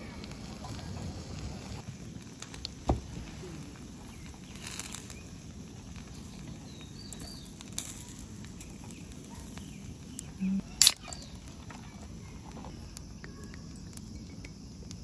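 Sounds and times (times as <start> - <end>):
food sizzling on a grill: 0.0 - 14.8
gas burner hissing: 0.0 - 15.0
faint bird chirps: 6.1 - 14.6
metal tongs clicking on grill: 10.2 - 11.3.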